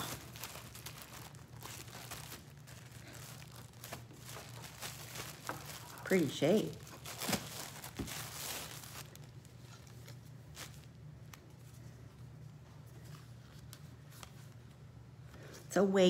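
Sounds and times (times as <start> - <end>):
fabric rustling: 0.0 - 11.9
low steady hum: 0.0 - 16.0.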